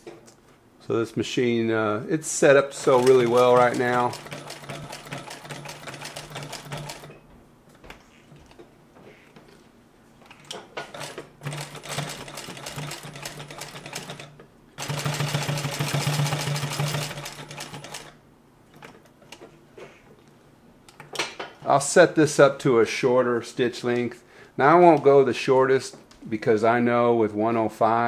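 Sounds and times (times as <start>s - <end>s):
sewing machine clatter: 2.7s - 7.2s, 10.4s - 19.4s.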